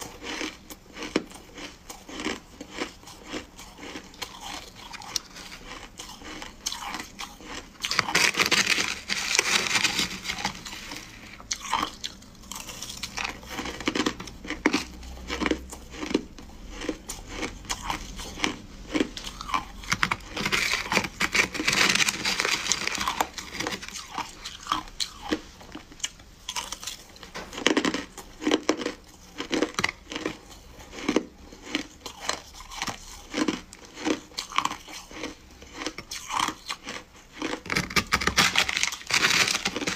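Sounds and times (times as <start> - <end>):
crunching ice: 0.0 - 39.9
metal spoon scraping ice: 2.3 - 15.5, 19.2 - 24.3, 37.4 - 39.9.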